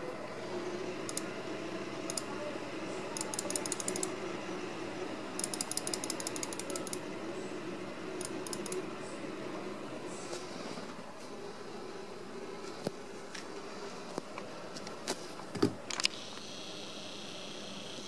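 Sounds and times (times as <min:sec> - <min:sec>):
steady low hum: 0:00.0 - 0:18.0
computer mouse clicking: 0:01.1 - 0:01.3, 0:02.1 - 0:02.3, 0:03.2 - 0:04.1, 0:05.4 - 0:07.0, 0:08.2 - 0:08.8
rapid ratchety ticks: 0:03.2 - 0:04.1, 0:05.4 - 0:07.0, 0:08.2 - 0:08.8.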